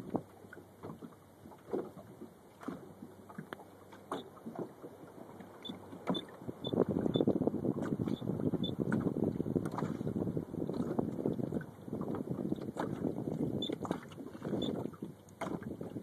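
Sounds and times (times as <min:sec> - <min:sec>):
waves lapping against boat hull: 0:00.0 - 0:16.0.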